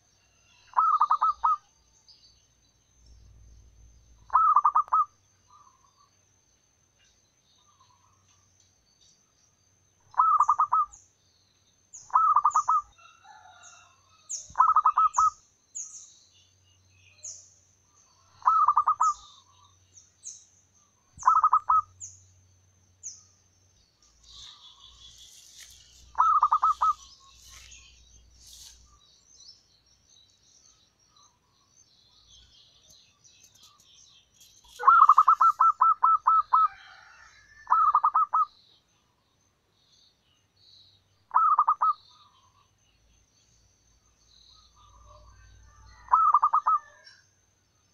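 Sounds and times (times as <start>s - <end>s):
small bird chirping: 0.0s - 6.2s, 7.0s - 47.9s
dove cooing: 4.3s - 5.1s, 18.4s - 19.2s, 21.2s - 21.9s, 26.1s - 27.1s, 34.8s - 38.5s, 41.3s - 42.0s
high twittering: 24.1s - 28.0s.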